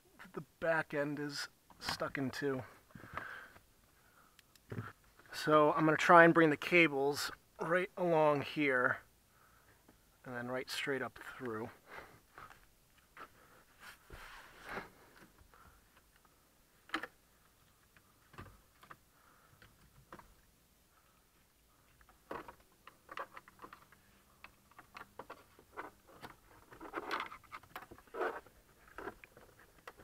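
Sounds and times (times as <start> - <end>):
cables rustling against plastic trim: 21.8 - 30.0.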